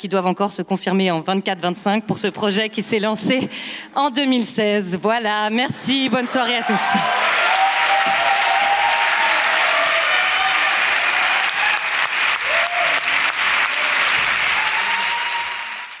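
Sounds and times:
audience applauding: 0:06.0 - 0:16.0.

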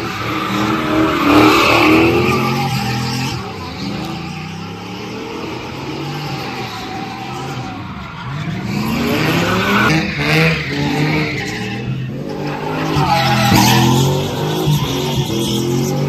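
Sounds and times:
tyres skidding: 0:00.0 - 0:16.0
car engine revving hard: 0:08.4 - 0:16.0.

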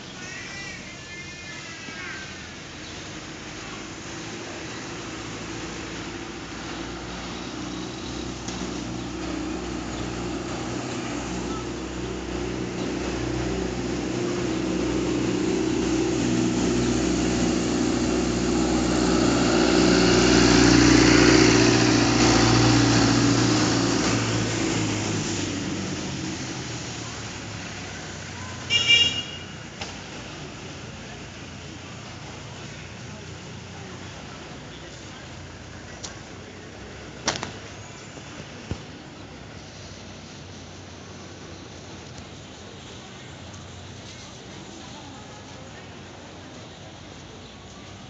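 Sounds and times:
vehicle engine running: 0:04.2 - 0:29.0.

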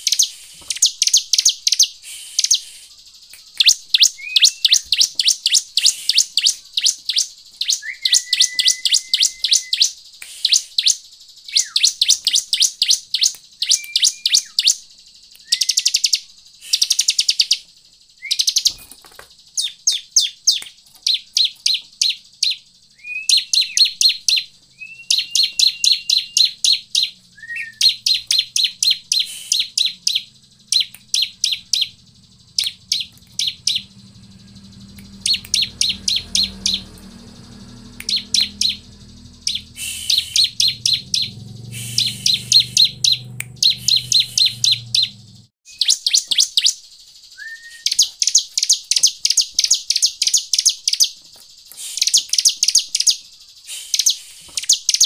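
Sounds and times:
bird singing high dry trills: 0:00.0 - 0:55.0
short low whistle: 0:33.2 - 0:45.2.

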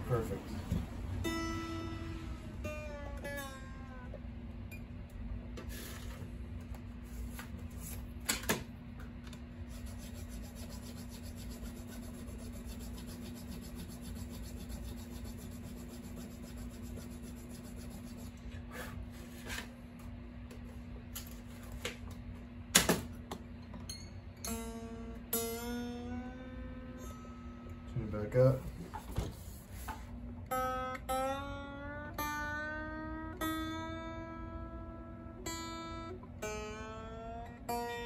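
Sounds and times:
steady low hum: 0:00.0 - 0:38.0
hands rubbing guitar headstock: 0:09.7 - 0:18.4.

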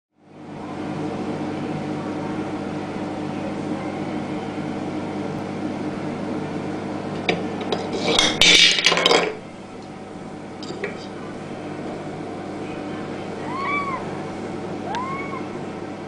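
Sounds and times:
mechanical hum: 0:00.2 - 0:16.0.

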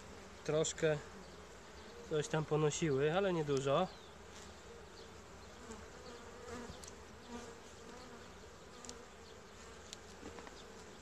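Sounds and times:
bees buzzing: 0:00.0 - 0:11.0
small ticks: 0:06.6 - 0:07.0, 0:08.8 - 0:09.1, 0:09.8 - 0:11.0.

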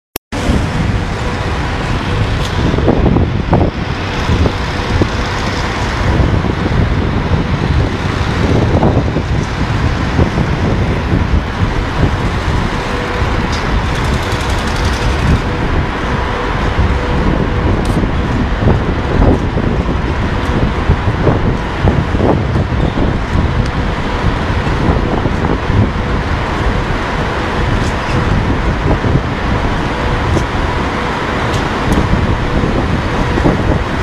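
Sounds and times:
wind buffeting microphone: 0:00.3 - 0:34.0.

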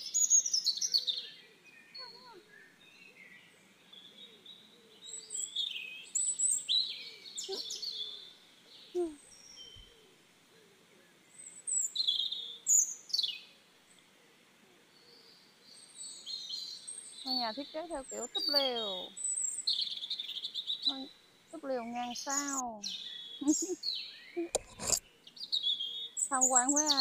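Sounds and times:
birds chirping and whistling: 0:05.1 - 0:08.2, 0:11.7 - 0:13.4, 0:16.0 - 0:27.0.

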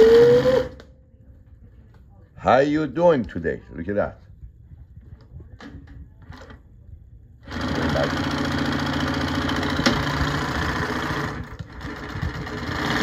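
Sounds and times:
industrial sewing machine running: 0:00.0 - 0:00.8, 0:07.4 - 0:13.0.

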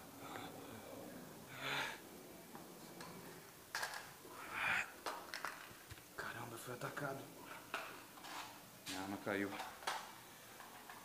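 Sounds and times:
person breathing: 0:00.0 - 0:02.1, 0:04.3 - 0:05.0.

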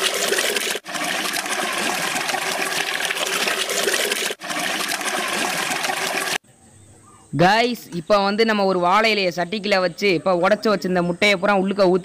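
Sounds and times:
eggs pouring between metal pots: 0:00.0 - 0:06.4.

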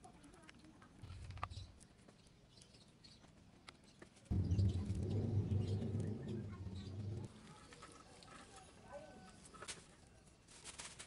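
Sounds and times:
low rumble: 0:04.3 - 0:07.3.

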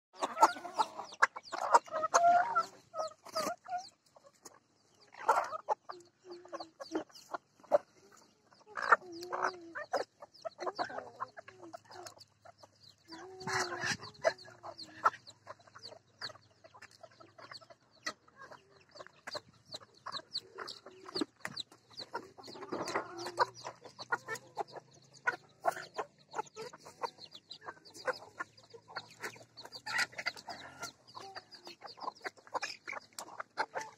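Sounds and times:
chickens clucking: 0:00.0 - 0:33.9.

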